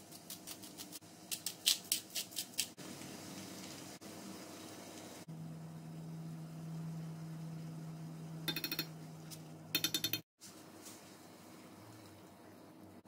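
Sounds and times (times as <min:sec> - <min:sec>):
low hum: 0:05.3 - 0:10.2.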